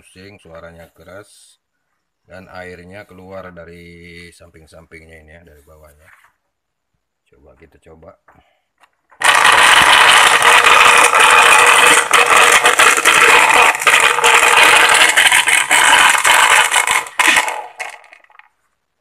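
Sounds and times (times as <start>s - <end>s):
blender rattling: 9.2s - 18.5s.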